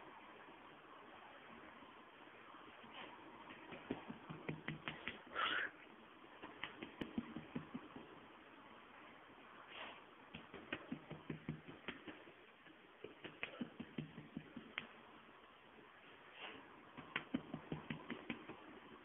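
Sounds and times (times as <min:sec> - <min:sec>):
soft patting taps on dog: 0:03.5 - 0:05.2, 0:06.4 - 0:08.2, 0:10.3 - 0:12.4, 0:13.0 - 0:15.0, 0:17.0 - 0:18.8.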